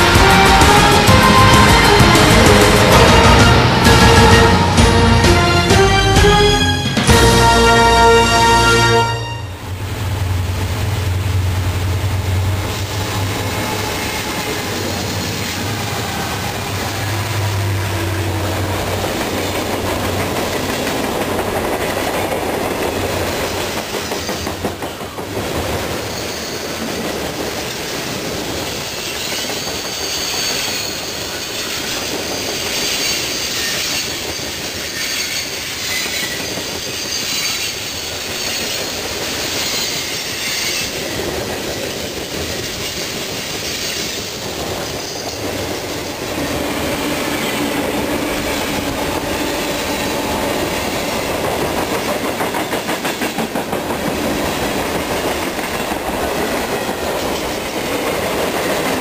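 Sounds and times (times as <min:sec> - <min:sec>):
freight train wheels on rails: 0:00.0 - 0:08.3, 0:09.0 - 0:59.0
high wheel squeal: 0:12.7 - 0:18.5, 0:25.9 - 0:26.8, 0:27.8 - 0:50.1.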